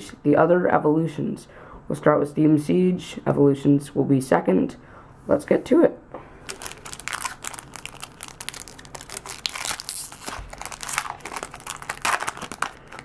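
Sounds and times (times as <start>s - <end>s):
foil wrapper tearing and crinkling: 6.4s - 13.0s.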